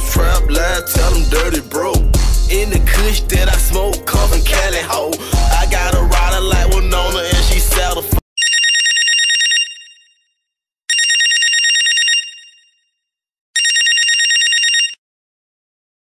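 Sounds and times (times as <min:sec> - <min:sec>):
hip hop music: 0:00.0 - 0:08.2
electronic telephone ringing: 0:08.4 - 0:10.2, 0:10.9 - 0:12.8, 0:13.6 - 0:15.0.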